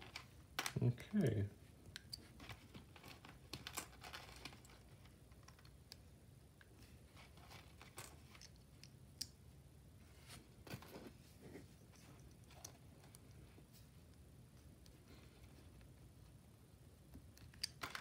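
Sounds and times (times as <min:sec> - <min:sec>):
plastic bricks clicking: 0:17.4 - 0:18.0.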